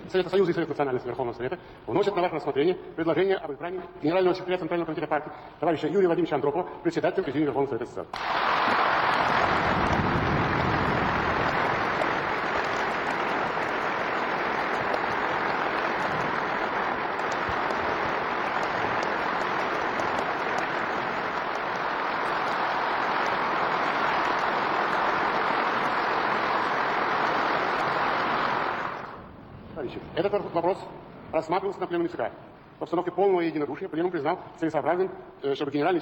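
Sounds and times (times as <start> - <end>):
crowd applauding in a hall: 8.2 - 29.2.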